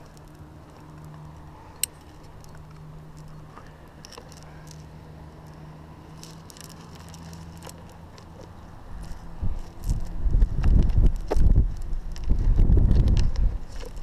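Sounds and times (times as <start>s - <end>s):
metal climbing nuts clinking: 0.0s - 10.1s.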